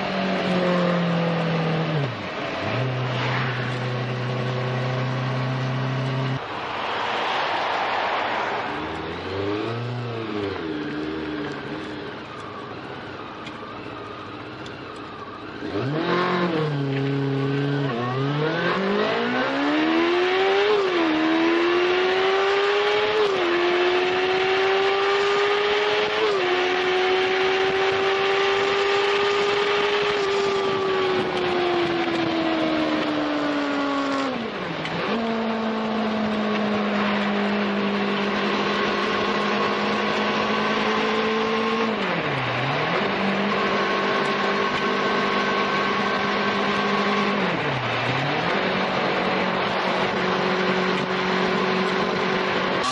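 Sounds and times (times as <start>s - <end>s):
motorcycle engine revving: 0.0s - 6.4s, 8.8s - 12.5s, 15.4s - 52.9s.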